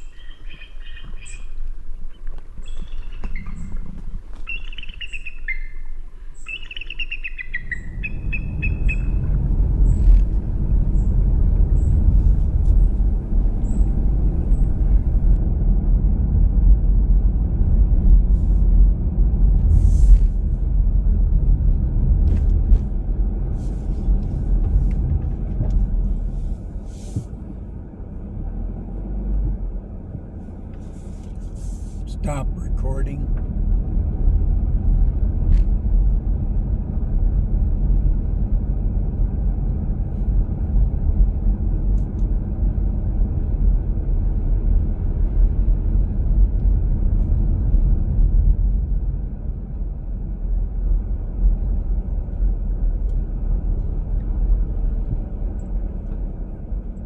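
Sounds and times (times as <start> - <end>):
bird calls: 0.0 - 10.3, 12.7 - 15.4
road noise in car cabin: 0.0 - 57.0.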